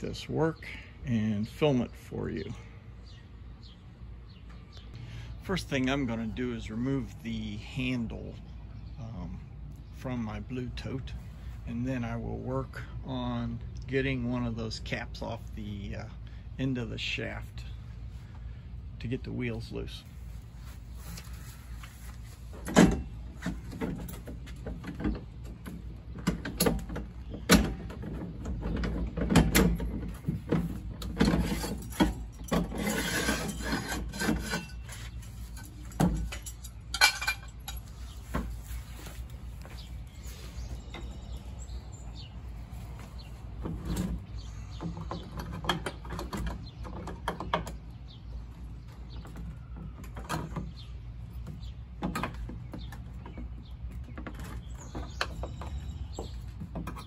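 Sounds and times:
scraping and rattling: 20.1s - 41.3s.

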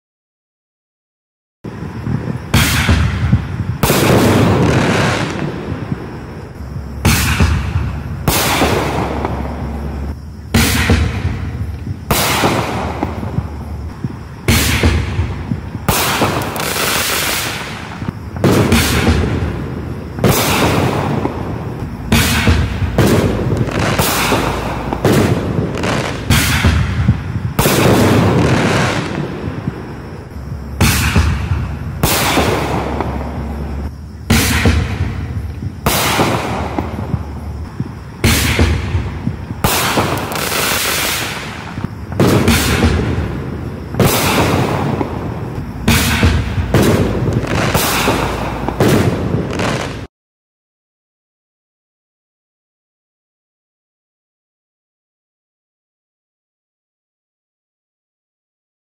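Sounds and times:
firework shell bangs with echo: 2.4s - 6.1s, 7.0s - 9.6s, 10.2s - 13.4s, 14.4s - 19.5s, 20.1s - 30.1s, 30.8s - 33.5s, 34.3s - 37.3s, 38.2s - 43.3s, 43.9s - 49.4s.

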